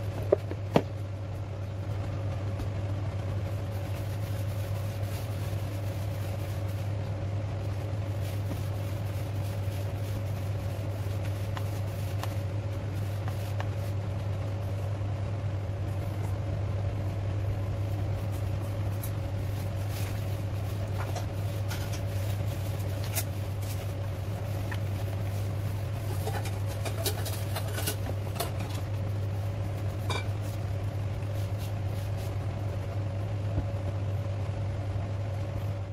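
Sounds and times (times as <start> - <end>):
low mechanical hum: 0.0 - 35.9
hands working dough in plastic bowl: 3.5 - 14.8, 15.8 - 32.6.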